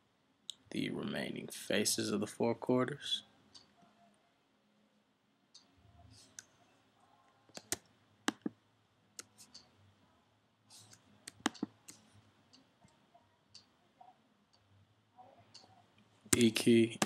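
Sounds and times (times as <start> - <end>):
faint low room hum: 0.0 - 17.0
computer mouse clicks: 7.5 - 8.6, 10.8 - 12.0.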